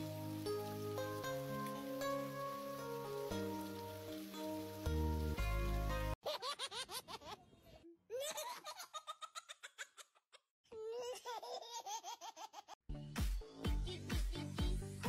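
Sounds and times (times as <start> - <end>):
music with steady beat: 12.9 - 15.0.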